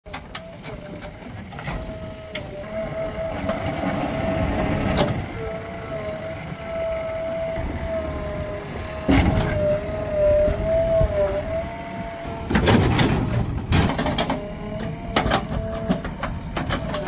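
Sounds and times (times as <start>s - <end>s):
diesel engine whining: 0.1s - 17.0s
backhoe bucket clanking: 7.5s - 11.1s, 12.4s - 17.0s.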